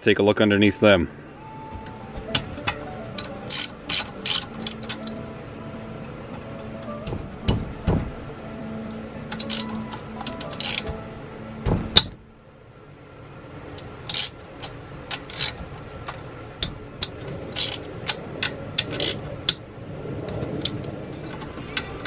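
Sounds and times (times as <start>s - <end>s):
socket wrench clicking on bolts: 2.6s - 5.2s, 9.3s - 11.0s, 14.1s - 19.6s
heavy metallic knock: 6.3s - 8.3s, 11.6s - 12.2s.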